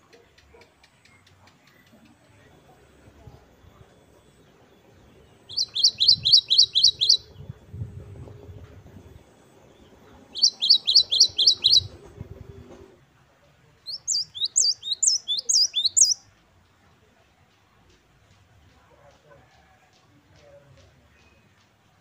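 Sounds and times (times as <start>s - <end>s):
great tit singing: 4.0s - 7.5s, 9.6s - 12.0s, 13.8s - 16.3s.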